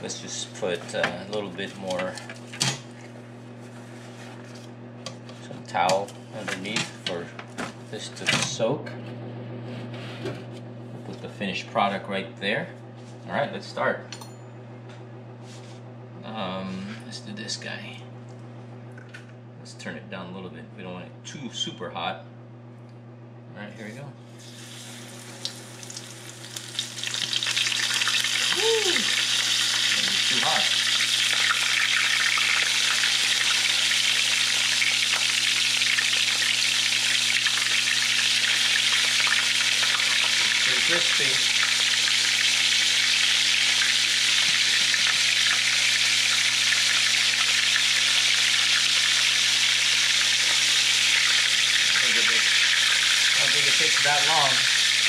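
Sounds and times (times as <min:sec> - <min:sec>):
food sizzling in hot oil: 0:24.4 - 0:55.0.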